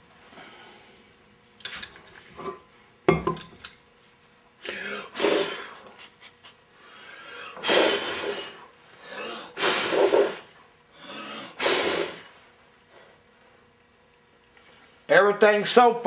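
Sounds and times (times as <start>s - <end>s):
short puffs of air: 7.6s - 8.6s, 9.6s - 10.5s, 11.6s - 12.4s.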